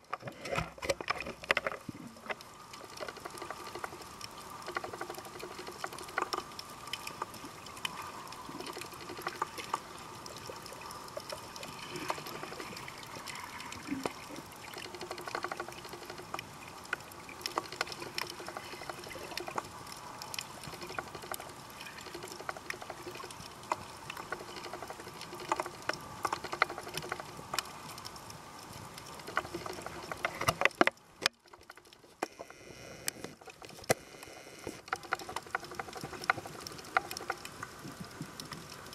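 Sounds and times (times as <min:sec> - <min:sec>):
underwater hiss with crackles: 0:00.1 - 0:38.9.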